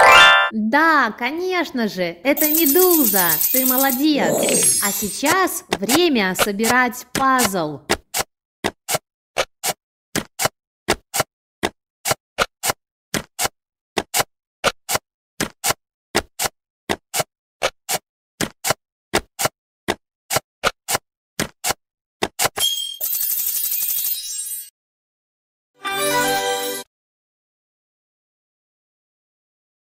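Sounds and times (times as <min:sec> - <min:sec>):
puzzle pieces clicking: 0:02.4 - 0:06.1.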